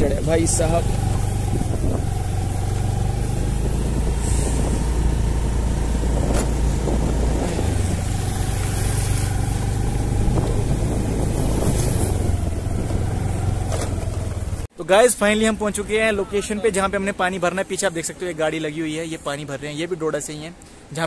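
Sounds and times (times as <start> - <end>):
scooter engine droning: 0.1 - 14.7.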